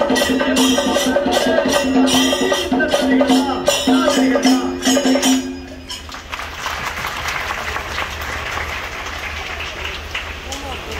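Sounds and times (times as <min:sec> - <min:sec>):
jingling percussion: 0:00.0 - 0:06.5
crowd noise: 0:00.0 - 0:10.9.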